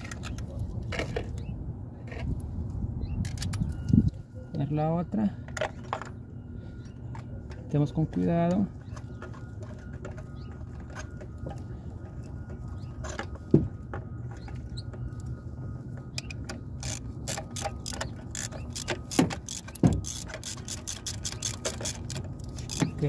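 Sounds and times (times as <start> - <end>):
socket ratchet clicking: 16.2 - 23.0.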